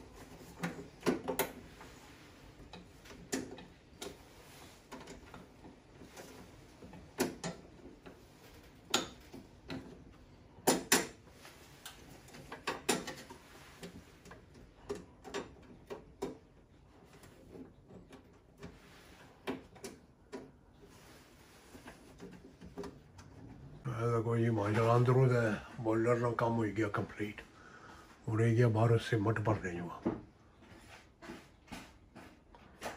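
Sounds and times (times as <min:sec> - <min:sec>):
parts clicking and knocking: 0:00.0 - 0:23.8.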